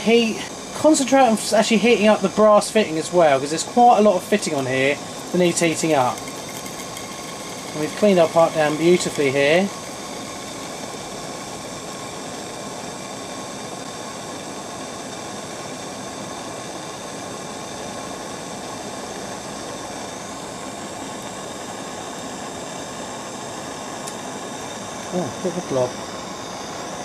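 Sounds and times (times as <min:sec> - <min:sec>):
blowtorch flame hissing: 0:00.0 - 0:27.0.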